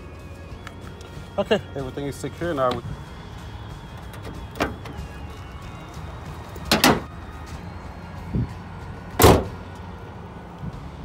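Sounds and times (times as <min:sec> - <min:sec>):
car hood slamming shut: 0:04.1 - 0:05.0, 0:06.7 - 0:07.1, 0:09.2 - 0:09.6.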